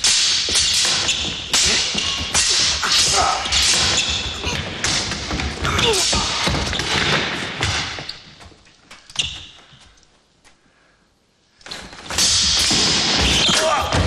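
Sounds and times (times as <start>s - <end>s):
swords clashing: 0.0s - 7.0s.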